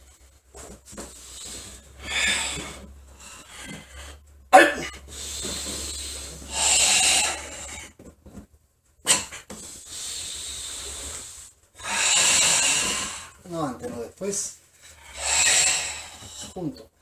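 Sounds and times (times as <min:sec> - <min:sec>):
forceful hissing breaths: 0:00.0 - 0:04.2, 0:04.9 - 0:08.0, 0:09.1 - 0:13.5, 0:14.8 - 0:16.7.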